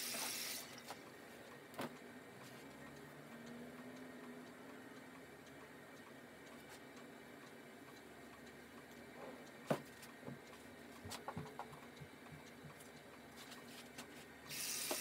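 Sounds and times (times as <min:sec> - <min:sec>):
short hiss: 0:14.5 - 0:15.0.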